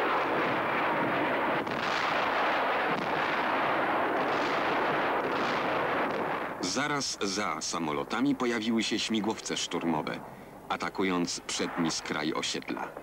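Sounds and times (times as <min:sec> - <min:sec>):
gunfire: 0:00.0 - 0:06.6
rumble of explosions: 0:00.0 - 0:13.0.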